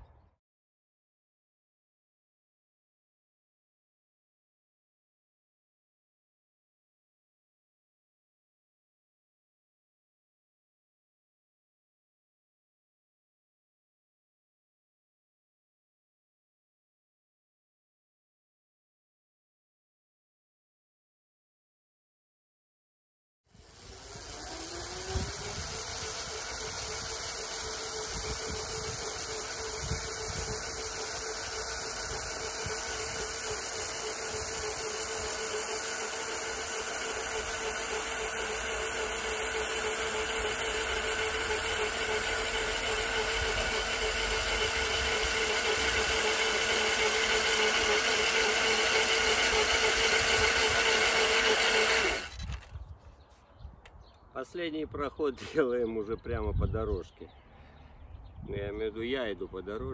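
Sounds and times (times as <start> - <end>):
electric cultivator motor whine: 23.5 - 52.8
tines churning soil: 23.5 - 52.8.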